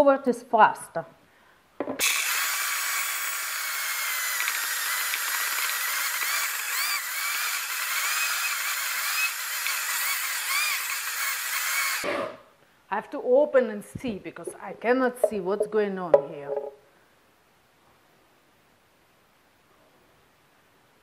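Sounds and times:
blender motor whining: 2.0s - 12.2s.

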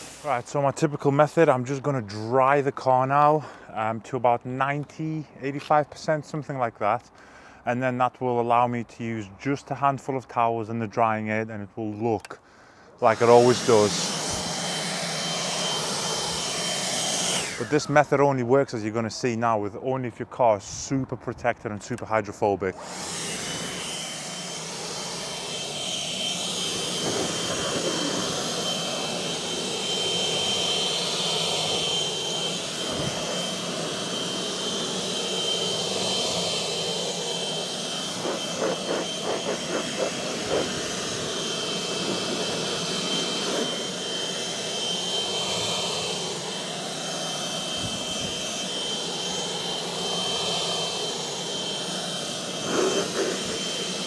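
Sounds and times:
electric blower blowing air: 0.0s - 1.9s, 13.0s - 18.7s, 22.0s - 54.0s.

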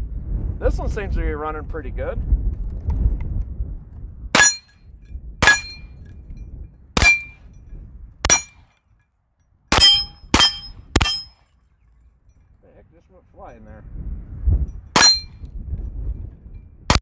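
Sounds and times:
steel plate target ringing: 4.4s - 4.7s, 5.4s - 6.0s, 7.0s - 7.4s, 8.3s - 8.6s, 9.7s - 11.5s, 15.0s - 15.4s.

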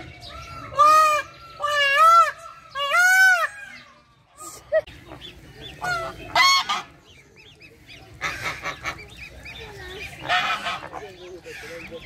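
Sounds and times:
flamingos honking: 0.4s - 3.8s, 4.4s - 12.0s.

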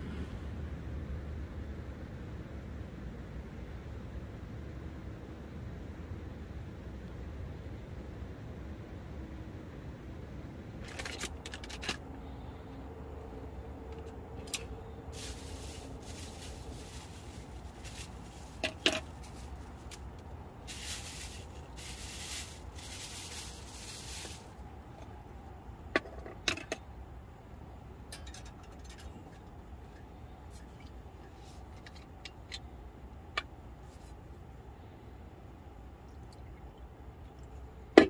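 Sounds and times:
low steady hum: 0.0s - 38.0s
plastic bag crinkling: 15.1s - 24.6s.

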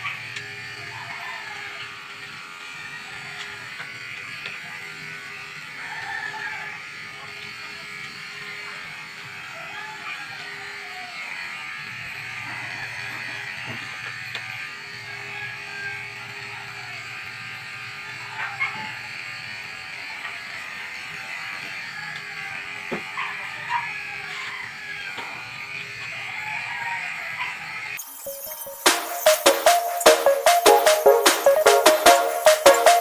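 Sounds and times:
electric clippers buzzing: 1.6s - 5.8s, 6.7s - 9.6s, 10.3s - 12.4s.

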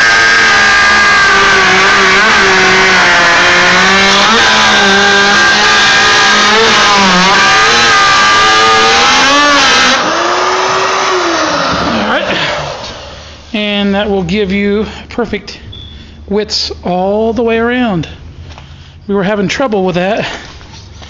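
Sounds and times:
electric router cutting plywood: 0.0s - 13.3s.

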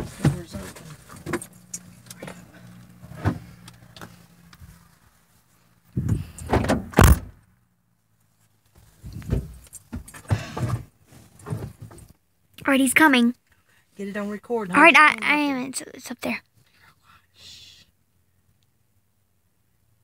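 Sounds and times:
people shifting inside car: 0.0s - 5.1s, 8.7s - 12.2s
car door slamming: 6.1s - 7.4s.

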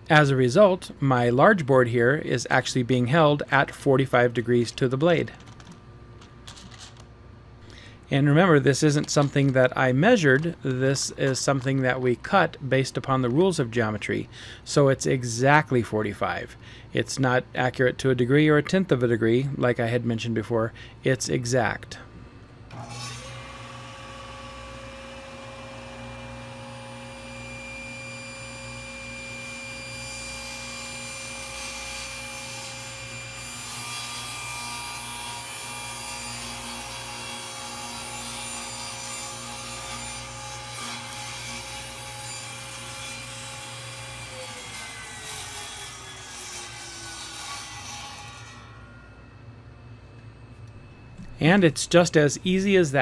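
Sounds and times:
table saw cutting plywood: 22.7s - 48.9s.

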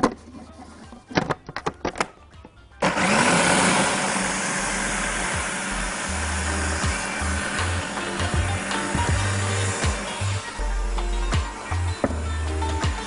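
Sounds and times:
clicks and knocks of handling: 1.1s - 2.6s
food processor motor blending: 2.8s - 11.9s.

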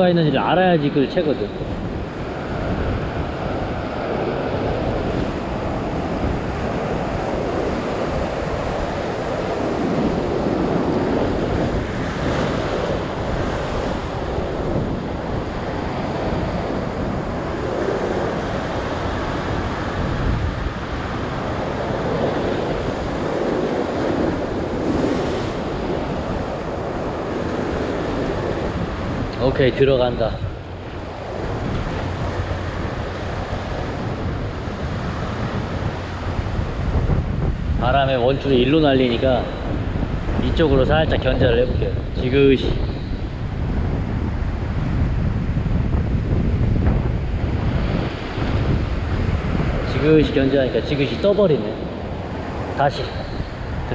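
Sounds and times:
ocean surf washing over rocks: 0.0s - 53.9s
wind buffeting microphone: 0.0s - 53.9s.

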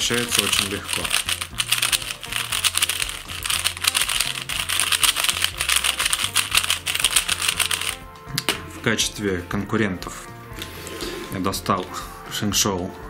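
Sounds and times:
background music: 0.0s - 13.0s
plastic cube clicking: 0.2s - 8.0s.

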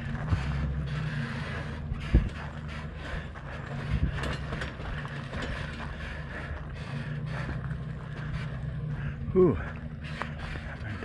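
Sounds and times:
motorhome engine humming: 0.0s - 11.0s
vehicle body rattling: 0.0s - 11.0s.

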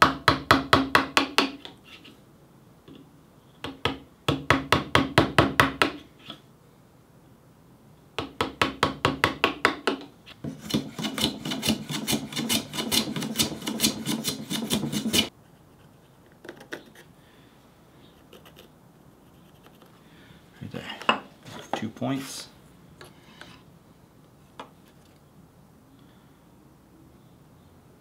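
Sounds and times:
hand file rasping wood: 10.5s - 15.3s
light scrapes and taps: 23.0s - 23.6s.

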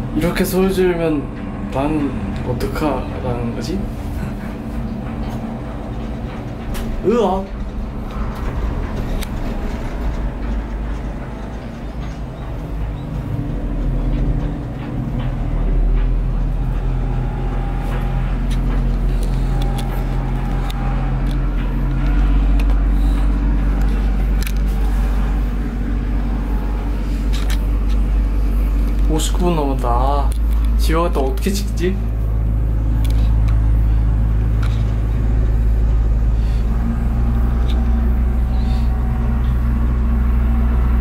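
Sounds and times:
gondola low rumble and hum: 0.0s - 41.0s.

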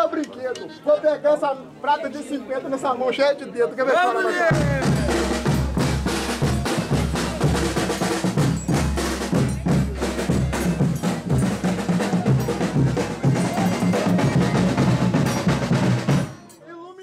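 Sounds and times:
drums and snare beat: 4.5s - 16.6s.

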